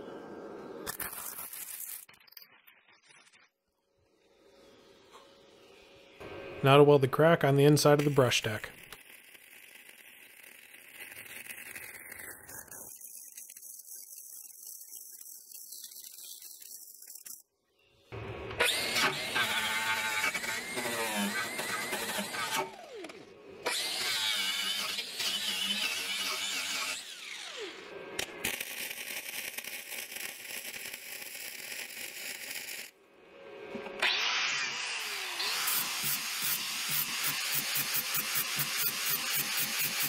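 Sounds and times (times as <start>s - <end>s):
welding arc crackling: 6.6s - 17.4s, 28.2s - 33.0s
angle grinder grinding steel: 7.2s - 17.4s, 18.6s - 23.0s, 23.7s - 27.8s, 34.0s - 40.0s.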